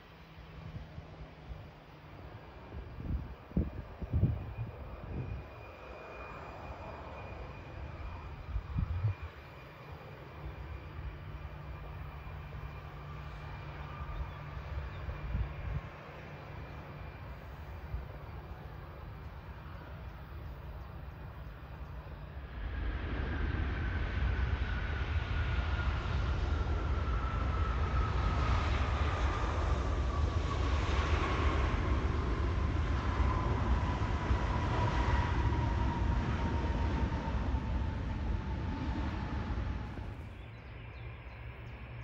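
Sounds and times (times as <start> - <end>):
jet engines rumbling and whining: 0.0 - 42.0.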